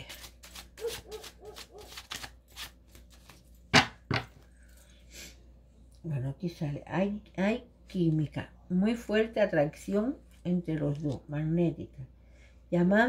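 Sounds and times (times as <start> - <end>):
cards being shuffled: 0.0 - 3.6.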